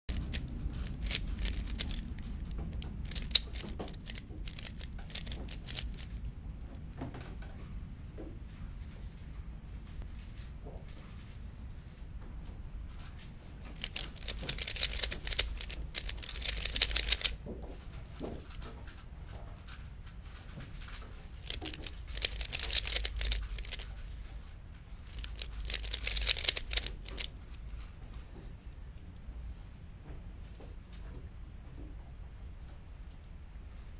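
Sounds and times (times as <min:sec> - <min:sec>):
puzzle cube plastic clicks: 0:00.1 - 0:06.2, 0:13.7 - 0:17.4, 0:21.4 - 0:24.0, 0:25.0 - 0:27.3.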